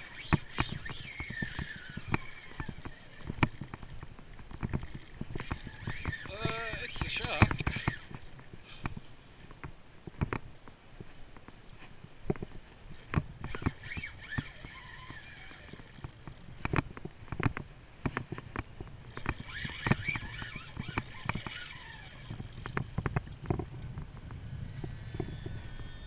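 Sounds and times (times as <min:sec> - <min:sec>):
fishing reel drag clicking: 0:00.0 - 0:08.7, 0:12.9 - 0:17.0, 0:18.6 - 0:23.5.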